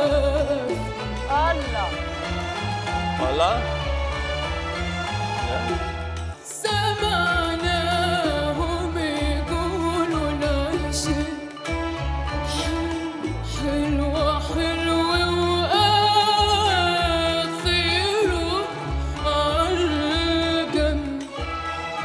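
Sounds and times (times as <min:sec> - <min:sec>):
backing track with pulsing bass: 0:00.0 - 0:22.0
woman singing melismatically: 0:06.4 - 0:11.7, 0:12.3 - 0:21.8.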